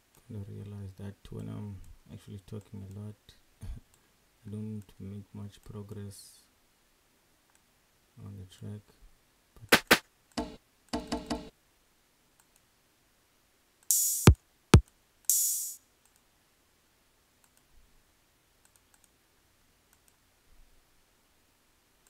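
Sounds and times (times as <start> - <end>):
faint mouse clicks: 7.5 - 7.7, 12.4 - 12.7, 16.0 - 16.3, 17.4 - 17.8, 18.6 - 19.2, 19.9 - 20.2
cymbal or shaker hits: 13.9 - 14.4, 15.3 - 15.8.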